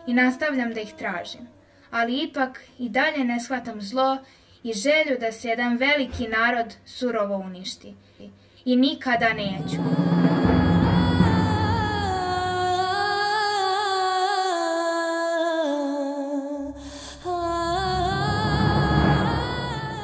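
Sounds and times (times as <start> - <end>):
woman singing slow melody: 0.0 - 1.8, 9.5 - 20.0
low drums: 9.1 - 13.0, 17.4 - 20.0.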